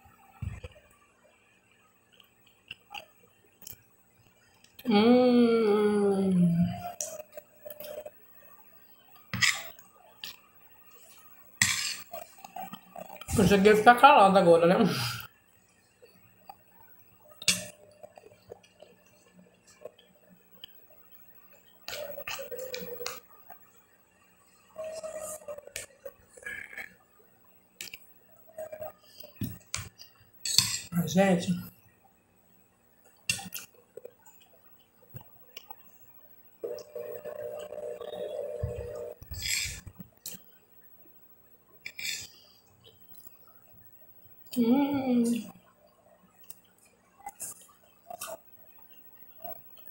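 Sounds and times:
person humming with full mouth: 4.8s - 6.8s
mouth eating noises: 21.8s - 23.6s.

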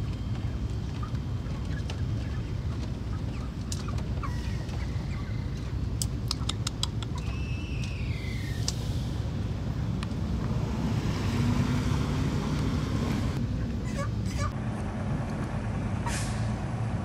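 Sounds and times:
chickens peeping and chirping: 0.0s - 8.6s, 13.6s - 14.6s
truck low rumble: 0.0s - 17.0s.

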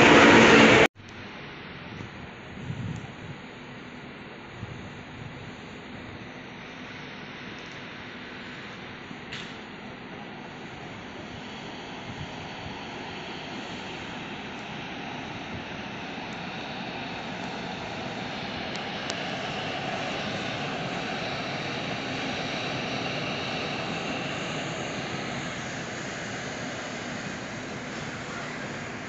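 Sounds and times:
freight train rolling past: 0.0s - 0.9s.

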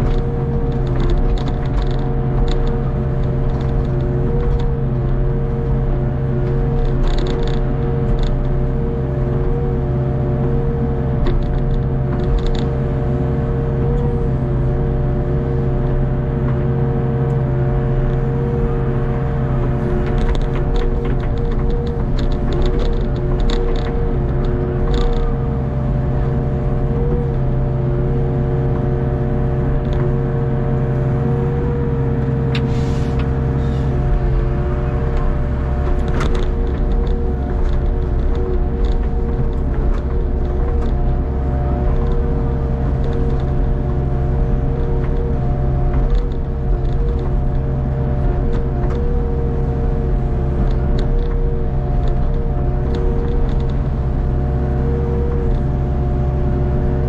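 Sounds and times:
excavator engine and hydraulics: 0.0s - 57.0s
hydraulic whine: 29.6s - 57.0s.

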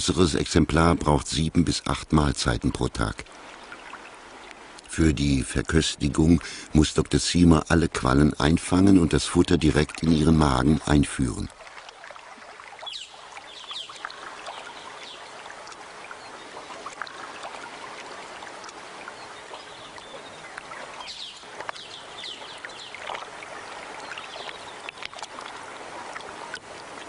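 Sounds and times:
water splashing and trickling: 0.0s - 27.0s.

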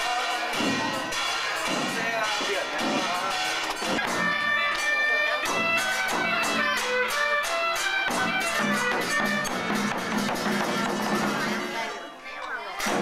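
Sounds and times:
percussion strikes: 0.0s - 13.0s
reedy melody: 3.1s - 11.6s.

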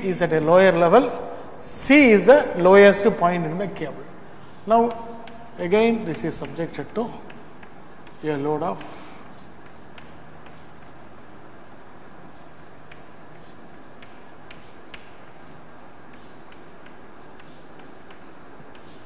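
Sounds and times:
room hiss: 0.0s - 19.0s
chalk tapping on blackboard: 4.4s - 19.0s.

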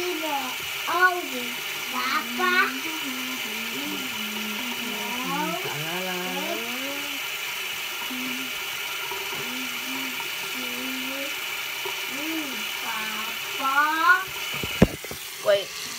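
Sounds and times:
toothbrush scrubbing teeth: 0.9s - 7.2s
person humming: 2.2s - 7.2s, 8.1s - 8.5s, 9.4s - 10.2s.

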